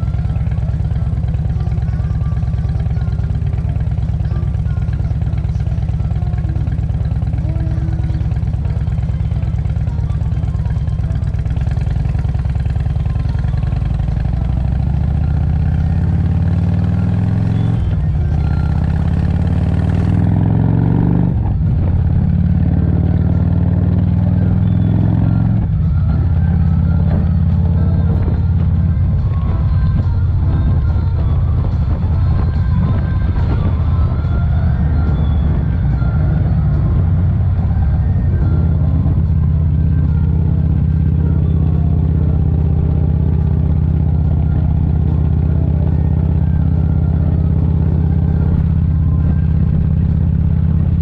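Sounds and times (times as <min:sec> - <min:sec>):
motorcycle accelerating through gears: 0:00.0 - 0:51.0
motorcycle engine idling: 0:00.0 - 0:51.0.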